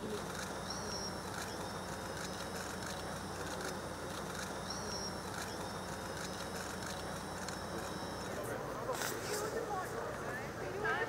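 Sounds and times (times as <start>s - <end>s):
low machine hum: 0.0s - 8.9s
outdoor background noise: 0.0s - 11.0s.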